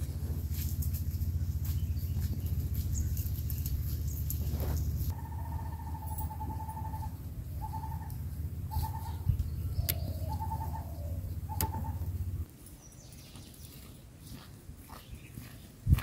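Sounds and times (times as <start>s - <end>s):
low rumble: 0.0s - 12.5s
bird calling: 1.0s - 12.5s.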